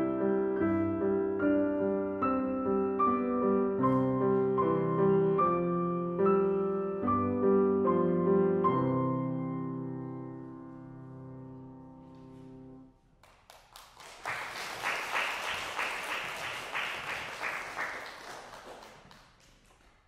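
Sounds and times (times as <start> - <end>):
audience applause: 13.2 - 20.0.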